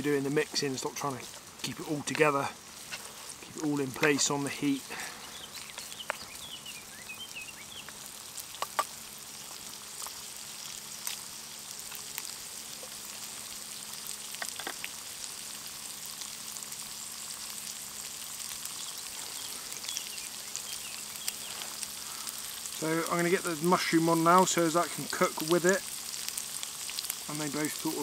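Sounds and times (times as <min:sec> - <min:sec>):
bacon sizzling in a frying pan: 0:00.0 - 0:28.0.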